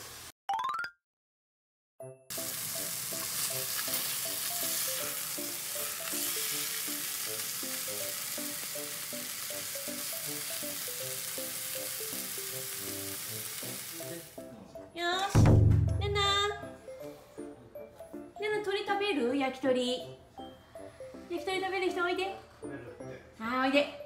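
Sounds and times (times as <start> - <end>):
chicken sizzling in a frying pan: 0.0 - 0.3, 2.3 - 14.4
light background music: 2.0 - 24.0.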